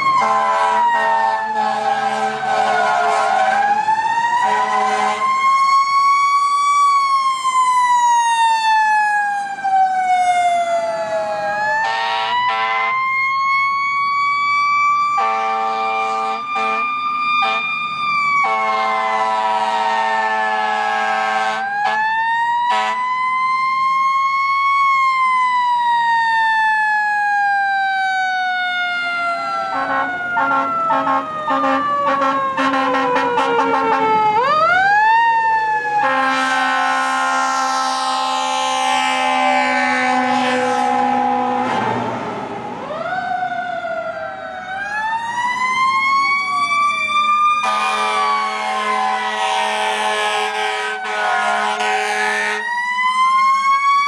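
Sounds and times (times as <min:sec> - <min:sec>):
fire engine siren wailing: 0:00.0 - 0:54.0
air horn blasts: 0:00.2 - 0:03.6, 0:04.4 - 0:05.3, 0:11.8 - 0:13.0, 0:15.2 - 0:17.7, 0:18.4 - 0:22.1, 0:22.7 - 0:23.0, 0:29.7 - 0:34.1, 0:36.0 - 0:42.1, 0:47.6 - 0:52.6.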